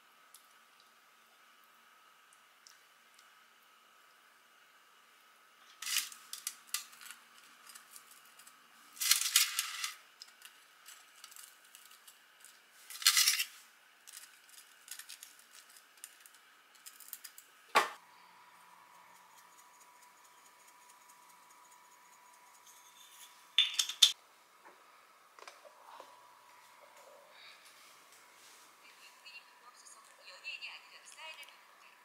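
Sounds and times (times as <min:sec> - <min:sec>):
crisp rustles of fried food: 0:05.7 - 0:17.4.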